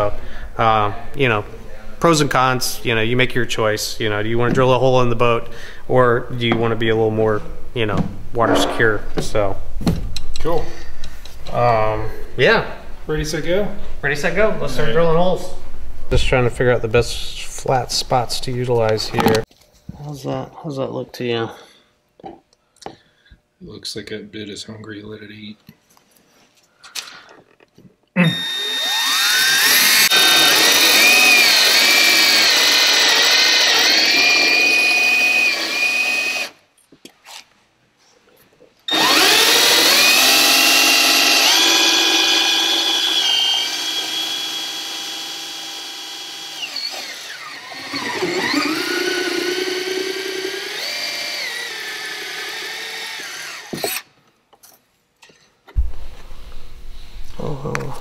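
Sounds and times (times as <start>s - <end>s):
cordless drill motor whine: 28.3s - 36.6s, 38.9s - 54.0s.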